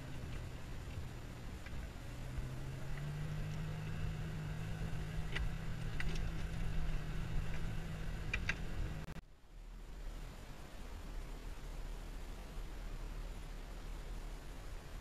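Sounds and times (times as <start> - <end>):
vehicle engine hum from inside: 0.0 - 15.0
light ticks: 5.1 - 9.2.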